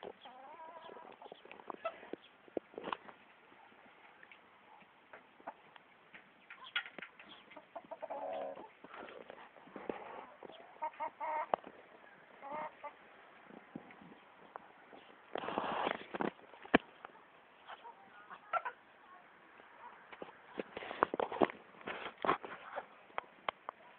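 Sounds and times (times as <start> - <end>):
chickens calling: 0.0 - 2.4, 4.3 - 13.0, 17.6 - 18.8.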